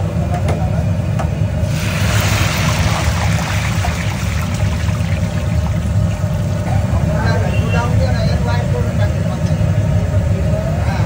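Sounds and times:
steady low rumble: 1.5s - 7.5s
food deep-frying in oil: 1.6s - 9.7s.

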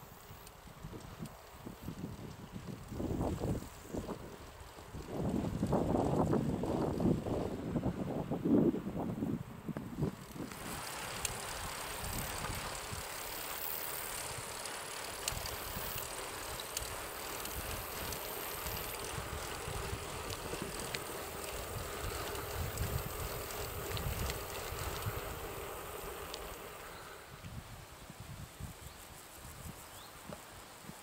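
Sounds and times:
bicycle tyres rolling on pavement: 0.0s - 31.0s
wind buffeting microphone: 0.6s - 31.0s
light ticks and rattles: 10.1s - 27.2s.

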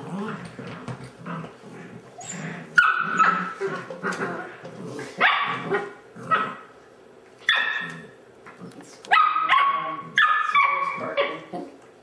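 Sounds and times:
puppies barking and yipping: 2.2s - 6.7s, 7.4s - 8.0s, 9.2s - 11.4s.

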